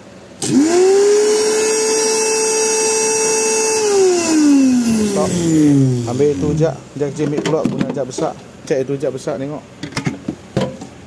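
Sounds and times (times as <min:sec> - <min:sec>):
blender motor whining: 0:00.4 - 0:06.7.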